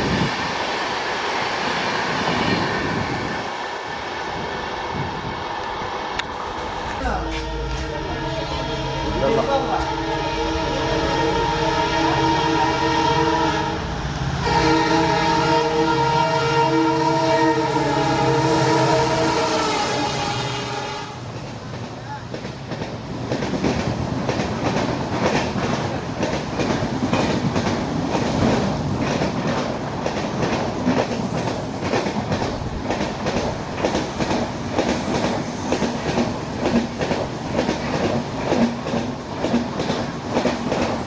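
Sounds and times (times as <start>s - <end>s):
train rolling rumble: 0.0s - 41.0s
train wheels clattering on rail joints: 21.3s - 41.0s.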